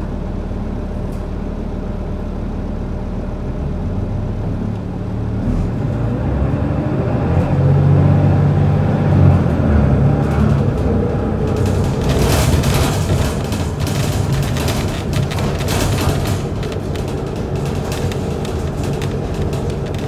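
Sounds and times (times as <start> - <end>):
diesel bus engine: 0.0 - 20.0.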